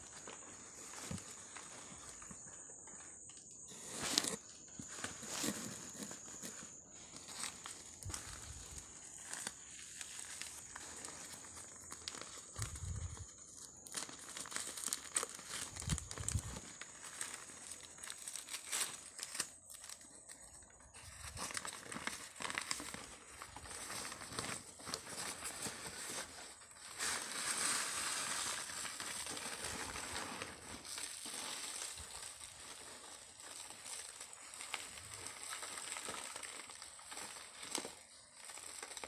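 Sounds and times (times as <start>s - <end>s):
paper wrapping crinkling: 0.0s - 39.0s.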